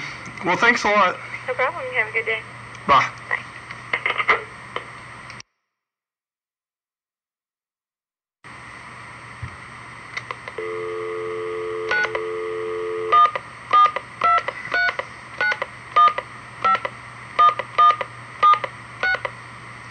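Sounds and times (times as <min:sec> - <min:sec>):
telephone dial tone: 0:10.6 - 0:16.8.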